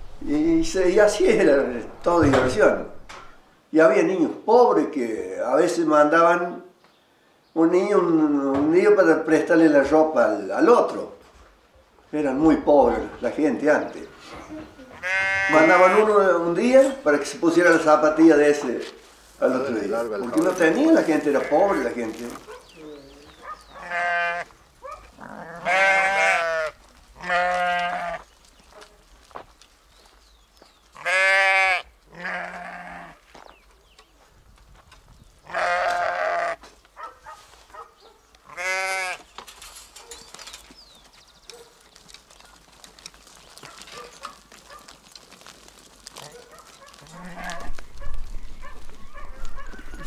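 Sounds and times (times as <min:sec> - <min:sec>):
low rumble: 0:00.0 - 0:03.5
sheep bleating: 0:14.8 - 0:16.2, 0:20.8 - 0:21.9, 0:22.8 - 0:24.5, 0:25.2 - 0:28.3, 0:31.0 - 0:33.2, 0:35.4 - 0:36.7, 0:38.4 - 0:39.2, 0:46.9 - 0:47.9
small clicks and rustles: 0:39.2 - 0:49.7.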